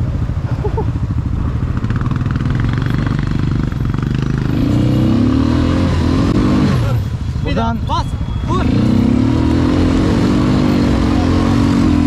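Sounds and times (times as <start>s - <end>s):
atv engine revving: 0.0s - 12.0s.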